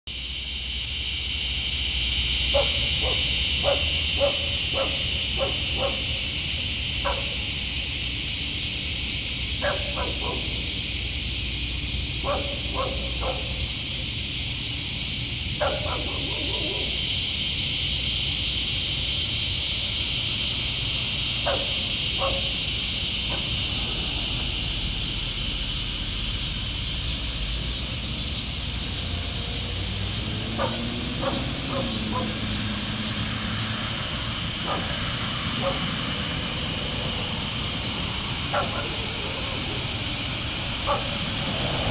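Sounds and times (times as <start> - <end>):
high-pitched insect chorus: 0.1 - 41.9
dog barking: 2.5 - 6.4, 7.0 - 7.5, 9.6 - 10.8, 12.2 - 13.8, 15.6 - 17.0, 21.4 - 22.6, 30.6 - 32.4, 34.6 - 35.0, 35.6 - 36.0, 38.5 - 39.8, 40.8 - 41.2.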